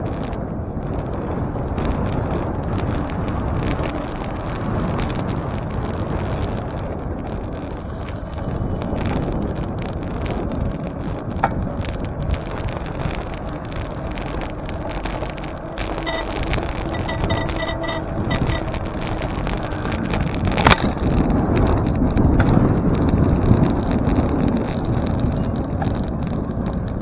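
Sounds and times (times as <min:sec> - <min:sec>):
bicycle tyre and road noise: 0:00.0 - 0:27.0
wind buffeting microphone: 0:00.0 - 0:27.0
regular ticks: 0:00.2 - 0:27.0
steady ringing tone: 0:15.7 - 0:19.4
short tone: 0:15.8 - 0:18.8.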